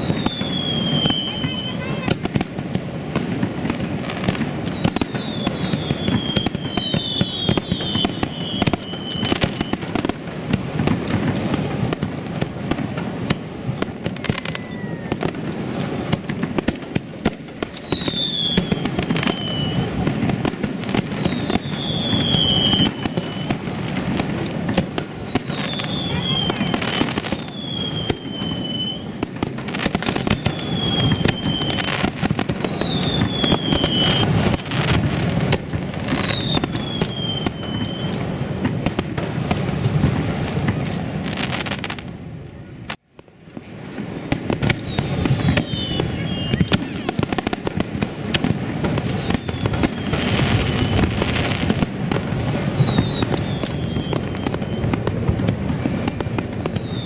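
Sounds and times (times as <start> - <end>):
falling whistle: 0.0 - 2.1, 4.6 - 9.8, 14.1 - 15.8, 17.7 - 19.9, 21.2 - 23.6, 25.2 - 29.1, 30.4 - 32.0, 32.6 - 34.3, 36.0 - 38.2, 44.8 - 46.8, 48.8 - 51.1, 52.7 - 55.0, 56.8 - 57.0
fireworks bursting: 0.0 - 57.0.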